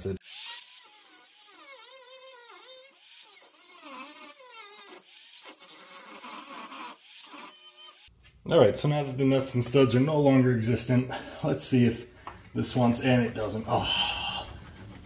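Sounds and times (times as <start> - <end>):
angle grinder cutting metal: 0.0 - 8.1.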